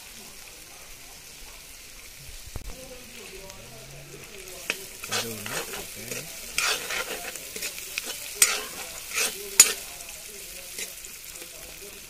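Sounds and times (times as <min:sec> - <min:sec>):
onions sizzling in oil: 0:00.0 - 0:12.0
metal spoon scraping pan: 0:04.0 - 0:11.0.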